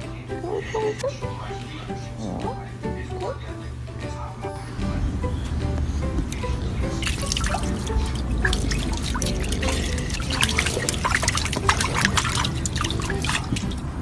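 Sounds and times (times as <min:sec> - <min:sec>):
water dripping and splashing: 0:05.3 - 0:14.0.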